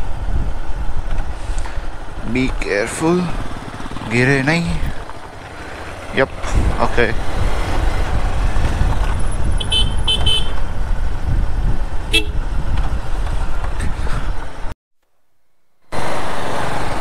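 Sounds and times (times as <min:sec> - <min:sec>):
wind rumble on microphone: 0:00.0 - 0:02.6, 0:06.3 - 0:14.7
motorcycle engine: 0:00.7 - 0:14.7.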